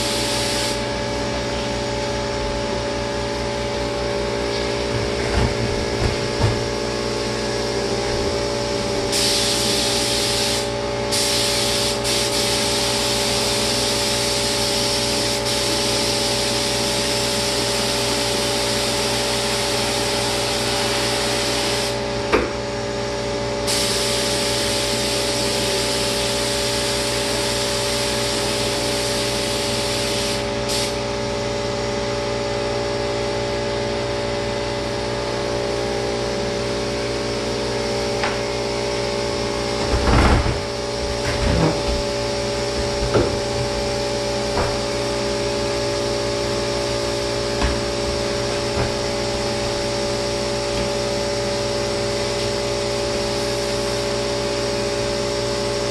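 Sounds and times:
spray gun hissing: 0:00.0 - 0:00.9, 0:09.1 - 0:22.0, 0:23.7 - 0:31.0
paint sprayer turbine hum: 0:00.0 - 0:55.9
knocks and clunks: 0:39.8 - 0:42.1.

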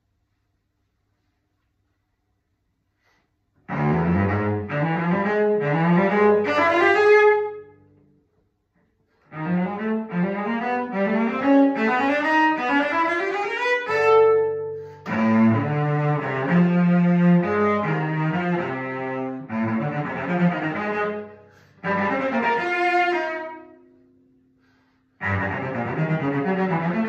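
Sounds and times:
bowed cello: 0:03.6 - 0:07.8, 0:09.2 - 0:24.0, 0:24.7 - 0:27.0.

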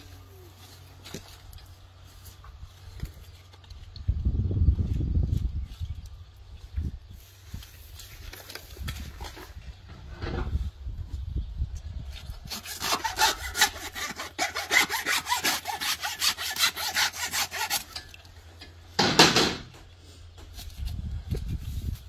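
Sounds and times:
hand saw cutting through bone: 0:12.4 - 0:18.1.

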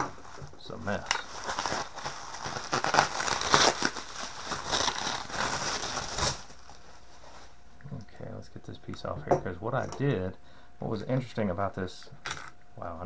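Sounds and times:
bubble wrap crinkling: 0:00.0 - 0:07.6.

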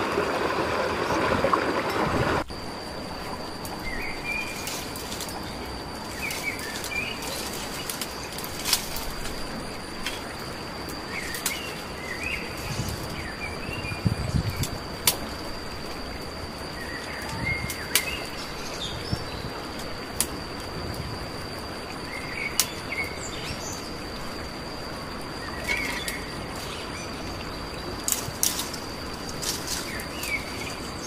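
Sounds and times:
high insect drone: 0:00.0 - 0:31.0
dry twigs snapping: 0:04.5 - 0:05.5, 0:06.1 - 0:09.4, 0:28.0 - 0:30.9.

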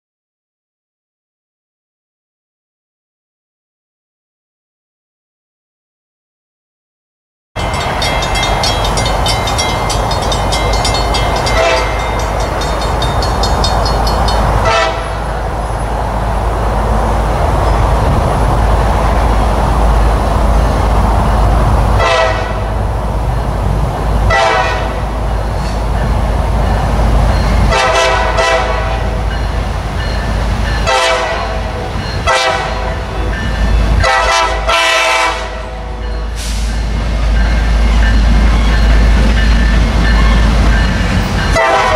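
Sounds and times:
train rumble: 0:07.6 - 0:41.9
train air horn toots: 0:11.5 - 0:12.1, 0:14.6 - 0:15.3, 0:22.0 - 0:22.7, 0:24.3 - 0:25.0, 0:27.7 - 0:29.2, 0:30.8 - 0:33.2, 0:34.0 - 0:36.8, 0:41.5 - 0:41.9.

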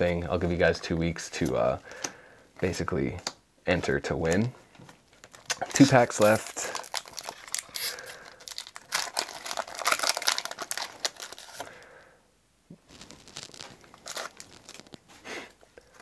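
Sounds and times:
cards rustling: 0:04.2 - 0:11.8, 0:12.9 - 0:15.2
foil wrapper crinkling and tearing: 0:05.1 - 0:11.8, 0:12.9 - 0:15.1.

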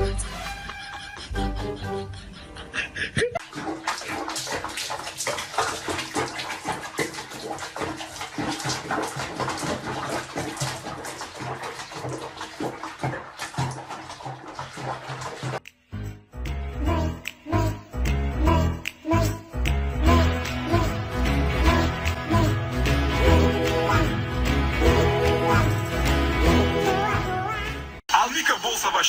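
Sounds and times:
water sloshing in basin: 0:03.4 - 0:15.6.

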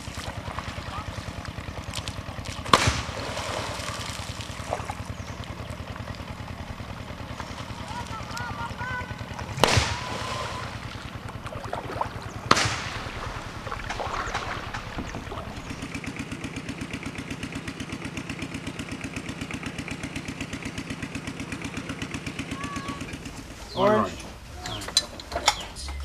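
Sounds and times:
sharp splashes: 0:00.0 - 0:16.3
boat motor chugging: 0:00.0 - 0:26.0.

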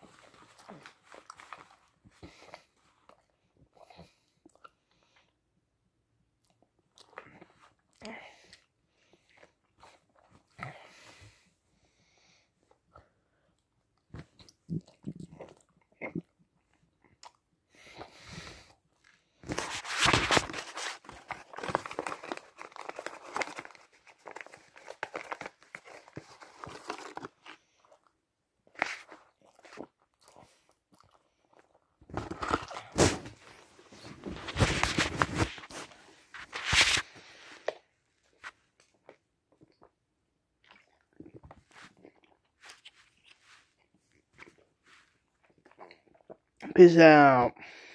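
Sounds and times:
gum chewing: 0:14.0 - 0:18.1, 0:40.6 - 0:44.7.

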